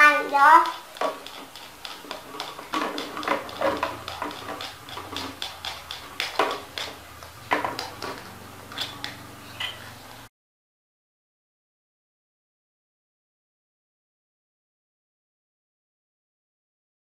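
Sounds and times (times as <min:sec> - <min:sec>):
plastic toys clacking together: 0:00.4 - 0:08.2.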